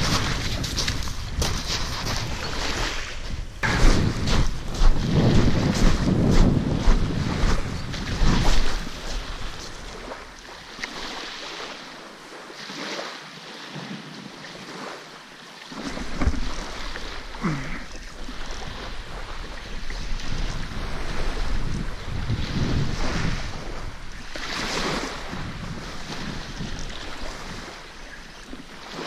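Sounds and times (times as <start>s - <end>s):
wind buffeting microphone: 0.0s - 10.4s, 18.1s - 29.0s
small waves washing on gravel beach: 0.0s - 29.0s.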